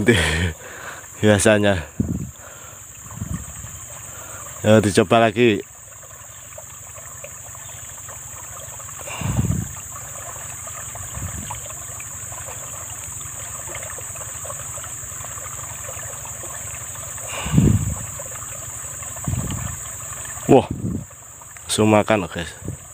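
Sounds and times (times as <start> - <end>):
high insect drone: 0.0 - 22.9
water trickling: 0.0 - 22.9
dull low thump: 2.0 - 2.3.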